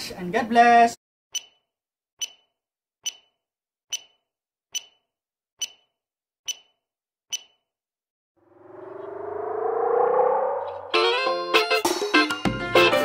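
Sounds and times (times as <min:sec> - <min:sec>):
timer ticking with metallic ring: 0:01.3 - 0:07.7.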